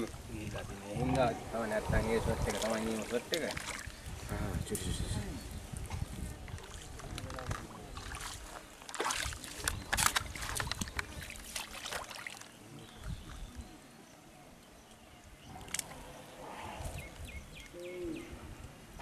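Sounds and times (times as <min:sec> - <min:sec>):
splashing in muddy water: 0:02.5 - 0:04.0, 0:07.5 - 0:13.4.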